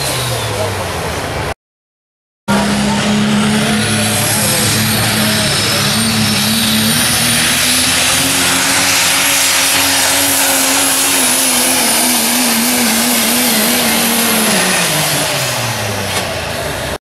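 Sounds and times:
diesel truck engine drone: 0:00.0 - 0:01.6, 0:02.5 - 0:17.0
high thin whine: 0:02.5 - 0:16.0.

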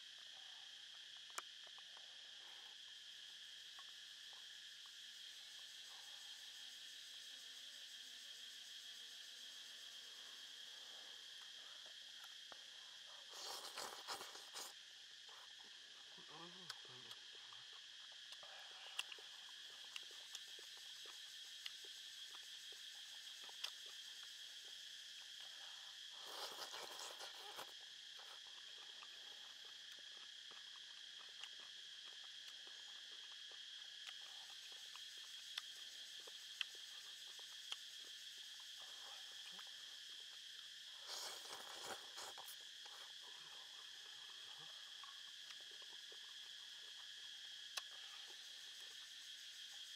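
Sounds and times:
insects chirring: 0:00.0 - 0:49.9.

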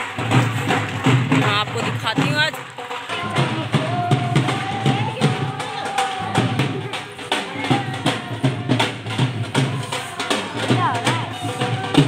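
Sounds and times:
dhol drum beating: 0:00.0 - 0:12.0.

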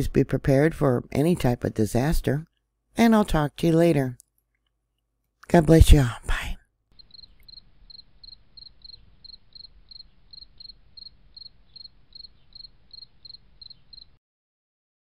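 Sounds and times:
cricket chirping: 0:07.0 - 0:14.2.

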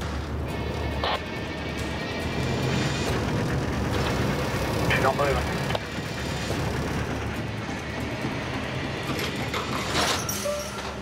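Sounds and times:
truck diesel engine under load: 0:01.9 - 0:10.0.

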